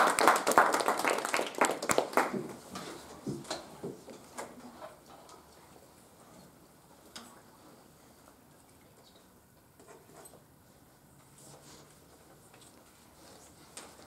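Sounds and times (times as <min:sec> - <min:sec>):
small group clapping: 0:00.0 - 0:02.6.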